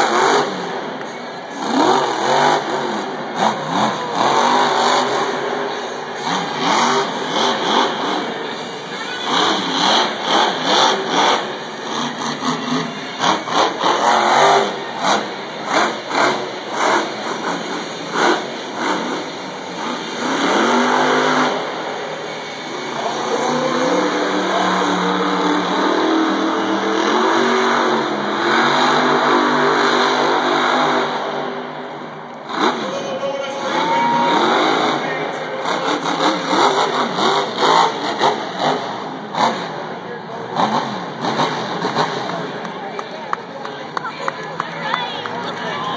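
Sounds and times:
monster truck engine revving: 0:00.0 - 0:45.9.

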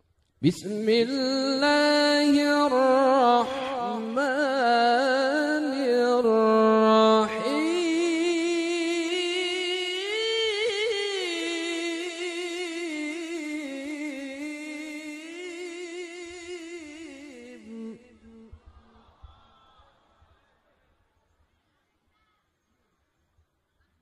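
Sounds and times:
man chanting through a microphone: 0:00.4 - 0:18.5.

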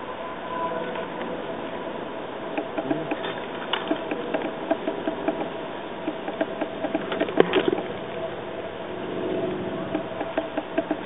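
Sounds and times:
woodpecker pecking bark: 0:02.5 - 0:07.9, 0:09.8 - 0:11.0.

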